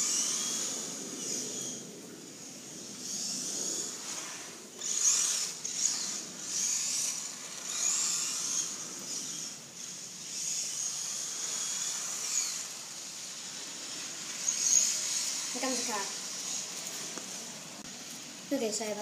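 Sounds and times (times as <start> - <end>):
electric motor whine: 0.0 - 18.6
tyres hissing through water: 10.8 - 18.6.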